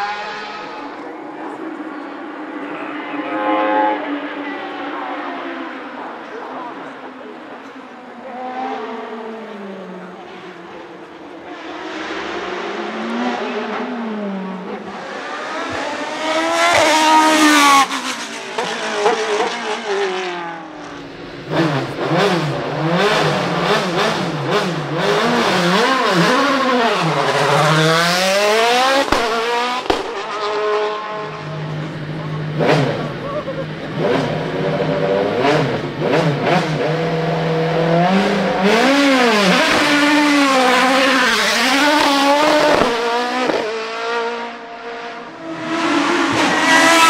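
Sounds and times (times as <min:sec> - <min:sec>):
racing car accelerating: 0:00.0 - 0:47.0
racing car launching with upshifts: 0:11.9 - 0:33.2, 0:33.9 - 0:44.4.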